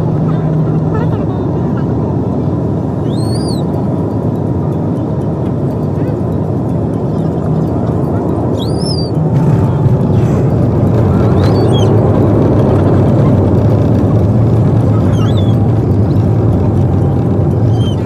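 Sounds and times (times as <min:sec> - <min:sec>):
vehicle engine rumble: 0:00.0 - 0:18.0
wind-like noise: 0:00.0 - 0:18.0.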